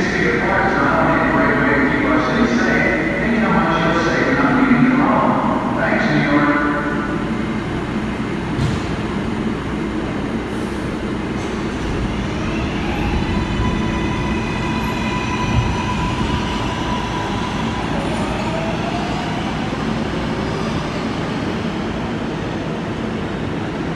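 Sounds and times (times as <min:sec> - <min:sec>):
train wheels rumbling on rails: 0:06.7 - 0:23.9.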